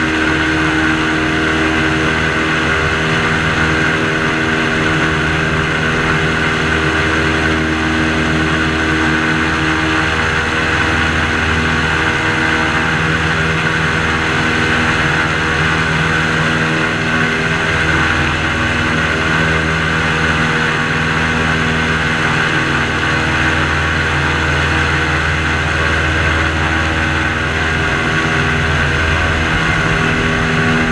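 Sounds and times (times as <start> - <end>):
airboat engine and propeller drone: 0.0 - 30.9.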